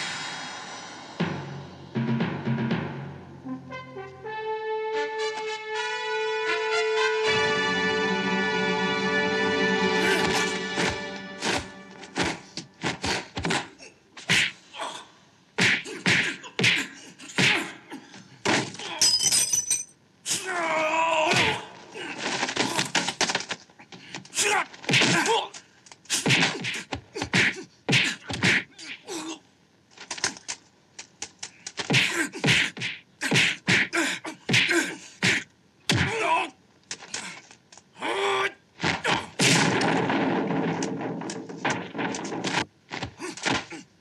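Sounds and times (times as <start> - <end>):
punches landing whacks and thuds: 15.6 - 17.7, 18.4 - 18.8, 21.3 - 21.6, 24.9 - 25.4, 26.1 - 28.7, 31.8 - 33.9, 34.5 - 36.2, 38.8 - 43.8.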